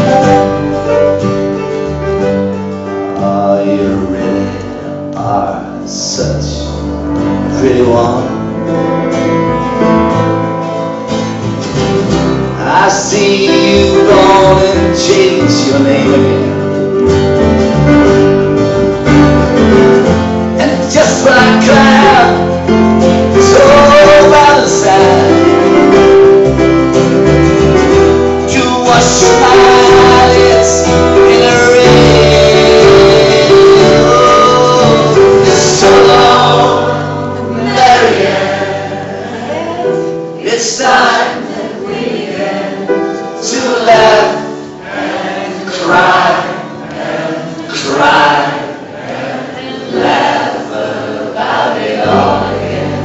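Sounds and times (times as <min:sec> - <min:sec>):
double bass: 0:00.0 - 0:40.5, 0:51.4 - 0:53.0
acoustic guitar: 0:00.0 - 0:53.0
voices singing in harmony: 0:20.6 - 0:25.8, 0:28.4 - 0:53.0.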